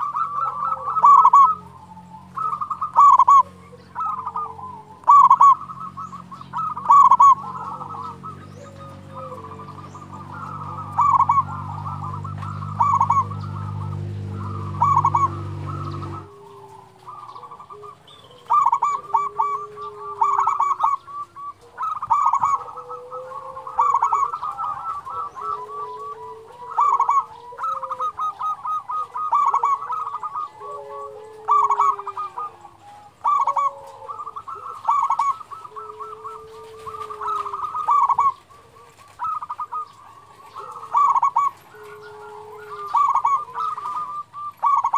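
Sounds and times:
steady low hum: 0.0 - 22.7
doves cooing: 0.0 - 44.9
low drawn-out coos: 0.0 - 44.9.

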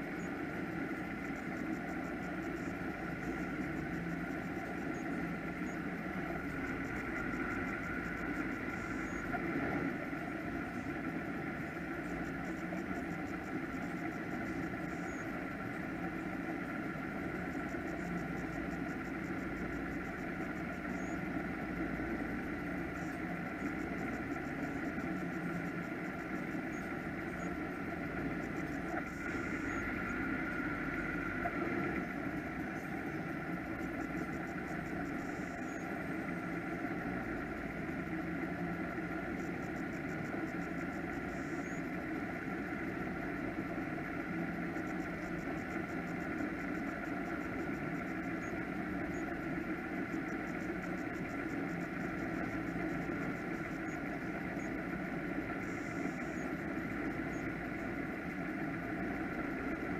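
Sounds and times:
boat engines idling: 26.9 - 35.2.

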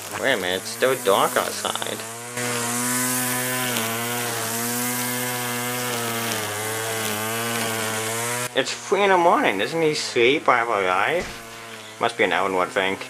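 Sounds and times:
lawn mower engine running: 0.0 - 8.6, 10.8 - 12.1.

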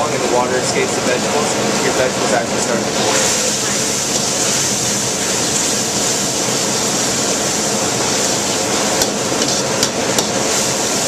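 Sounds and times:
food sizzling in a wok: 2.6 - 11.0.

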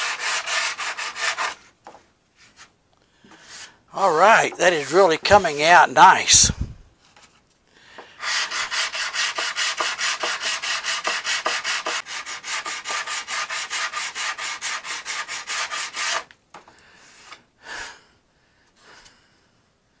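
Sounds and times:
sanding block strokes: 0.0 - 1.6, 8.2 - 16.3.

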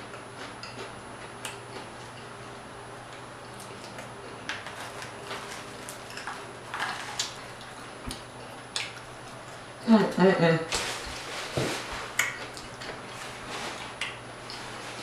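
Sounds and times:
crunchy fried fish crackling: 3.0 - 9.7
chewing and mouth clicks: 3.1 - 9.6, 12.1 - 13.2.

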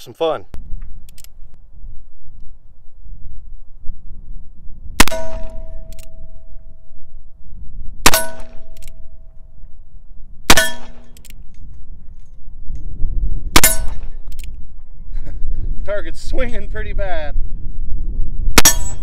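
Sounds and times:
metallic clang of steel target: 5.0 - 6.4, 8.1 - 9.3, 10.5 - 12.4, 13.5 - 14.4, 18.6 - 19.0.

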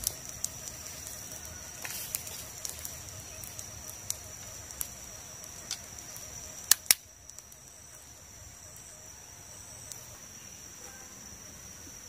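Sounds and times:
dry sticks snapping: 0.0 - 7.7
high-pitched insect drone: 0.0 - 12.0.

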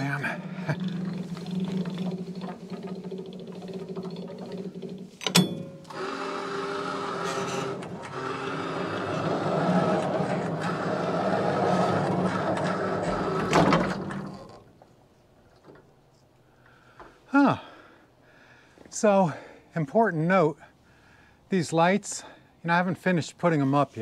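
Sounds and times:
bandsaw sawmill cutting log: 0.0 - 14.6.

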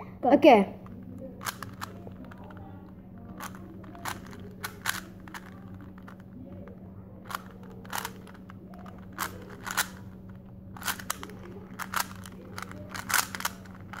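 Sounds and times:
speed cube clacking: 0.7 - 14.0.

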